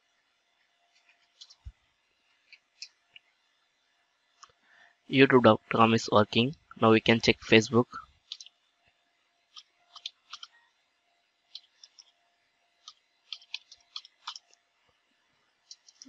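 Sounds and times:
keyboard keystrokes: 9.6 - 10.5, 12.9 - 14.4.

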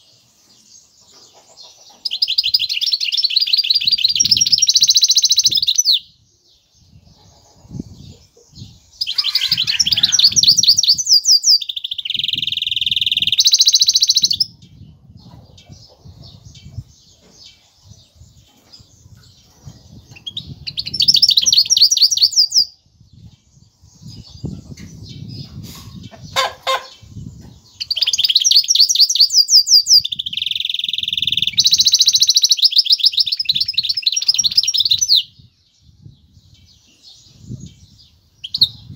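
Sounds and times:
finch singing trills: 6.8 - 14.5.

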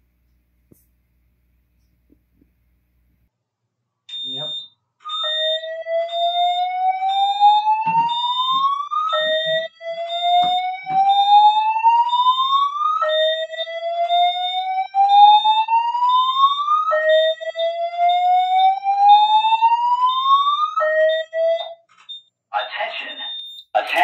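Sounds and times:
fire alarm whoop tone: 4.1 - 21.9.

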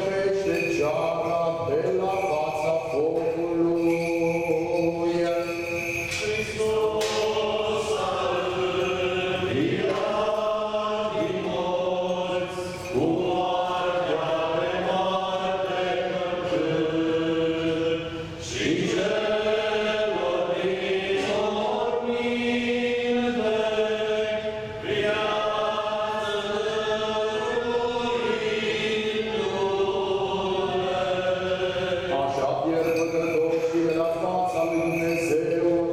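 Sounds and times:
group chanting: 6.1 - 32.4.

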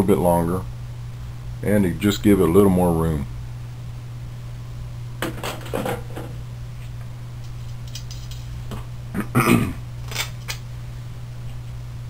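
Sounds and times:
steady low hum: 0.0 - 12.0
metal parts clinking: 7.4 - 8.5, 10.1 - 10.6.

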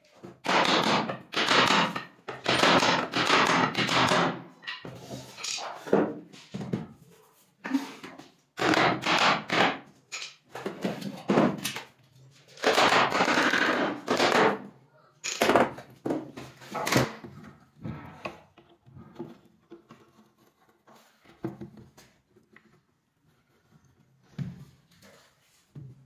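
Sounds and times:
hammering: 0.4 - 4.5
knocks and scraping of wooden box: 15.7 - 22.8.

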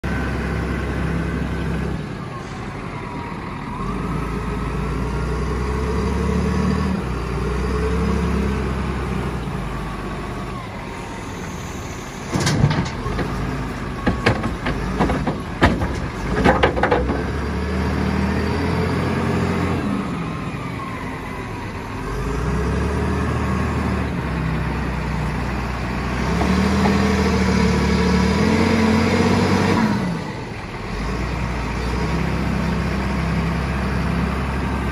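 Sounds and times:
diesel engine revving: 0.0 - 34.9
soil dumped into metal truck: 12.2 - 17.6.

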